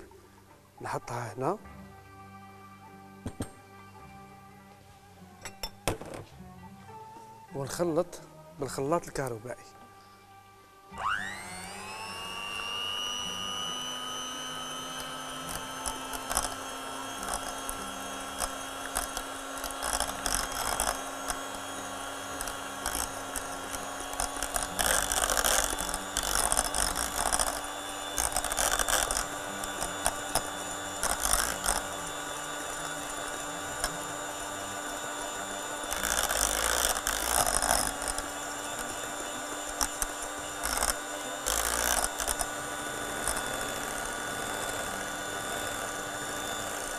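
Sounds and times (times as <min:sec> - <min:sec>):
electric hand mixer running: 0:10.9 - 0:46.9.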